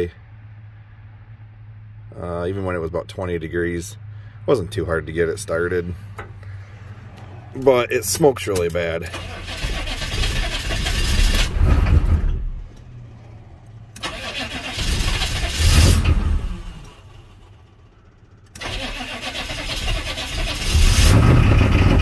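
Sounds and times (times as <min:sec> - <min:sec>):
starter motor cranking diesel engine: 0:07.2 - 0:22.0.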